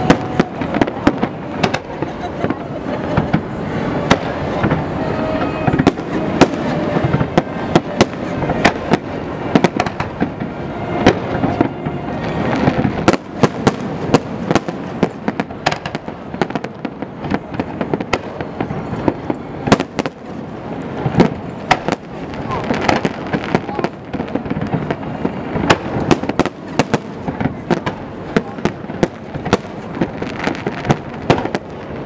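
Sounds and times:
fireworks bursting: 0:00.0 - 0:32.0
fireworks rumble and crackle: 0:00.0 - 0:32.0.

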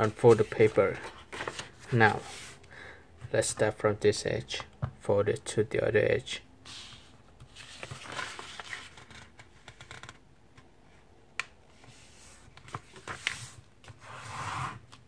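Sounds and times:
paper rustling and sliding: 0:00.0 - 0:02.7, 0:06.7 - 0:09.3, 0:11.7 - 0:15.0.

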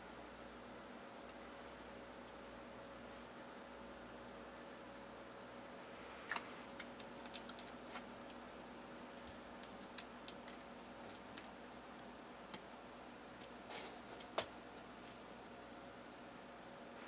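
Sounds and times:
faint steady hiss: 0:00.0 - 0:17.0
plastic sheets clicking and tapping: 0:06.7 - 0:08.4, 0:09.2 - 0:11.6.

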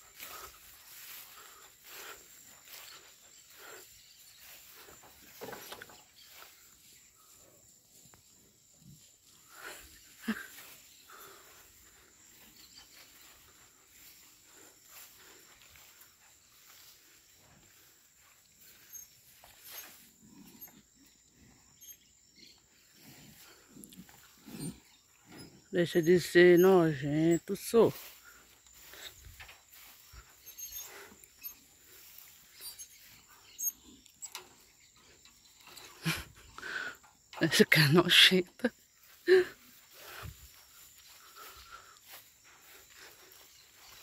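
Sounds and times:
faint rustles: 0:00.0 - 0:25.7, 0:27.9 - 0:37.3
high insect drone: 0:00.0 - 0:44.0
cattle snorting: 0:08.5 - 0:25.7, 0:28.0 - 0:34.4.

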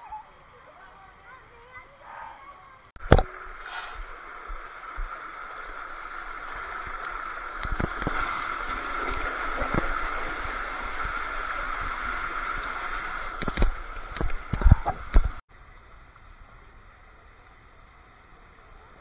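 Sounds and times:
water rushing through tube slide: 0:03.6 - 0:15.2.

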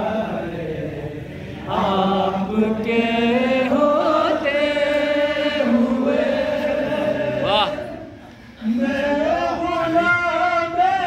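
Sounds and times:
man singing into a microphone: 0:08.6 - 0:11.0.

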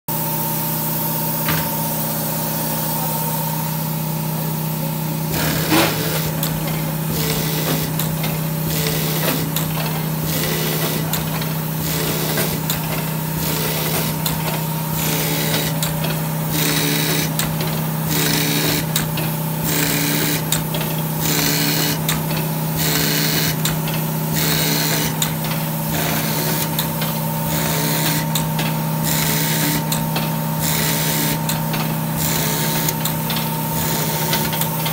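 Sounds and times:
machine hum: 0:00.1 - 0:34.9
short machine clack: 0:05.3 - 0:08.4.

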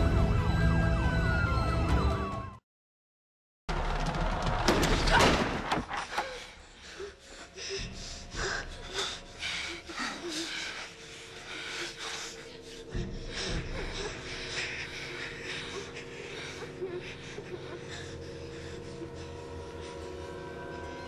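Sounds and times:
film score drone: 0:06.0 - 0:21.0.

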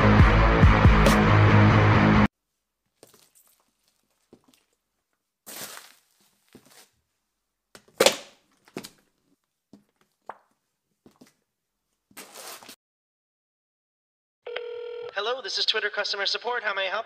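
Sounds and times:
fruit squelching and cracking: 0:02.9 - 0:06.9.

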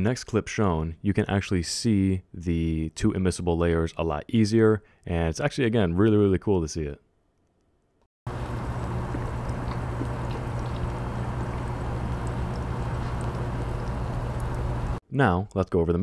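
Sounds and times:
liquid boiling with pops: 0:08.3 - 0:15.0
low hum: 0:08.3 - 0:15.0.

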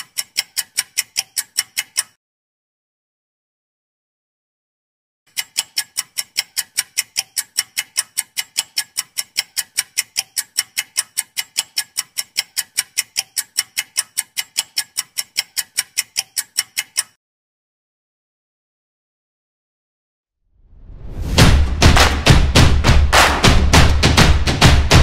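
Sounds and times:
clock ticking: 0:00.0 - 0:02.2, 0:05.3 - 0:17.2.

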